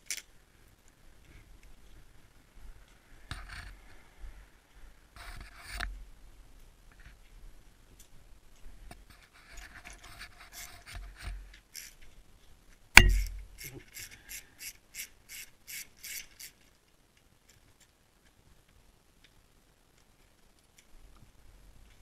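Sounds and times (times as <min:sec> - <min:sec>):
ratchet wrench clicking: 0:11.7 - 0:12.0, 0:13.0 - 0:16.6
loud sharp knock: 0:13.0 - 0:13.4.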